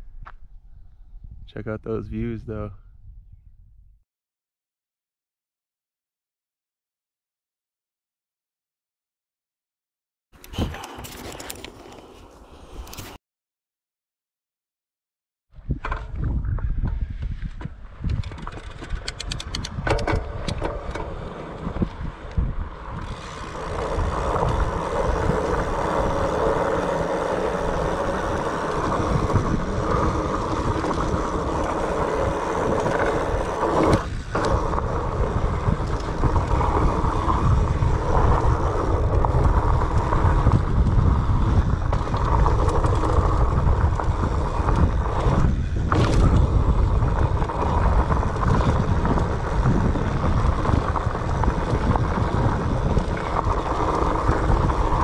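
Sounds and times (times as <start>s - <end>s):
wind rushing over microphone: 0.0s - 4.0s, 15.6s - 55.0s
bike tyres rumbling on rough trail: 15.8s - 55.0s.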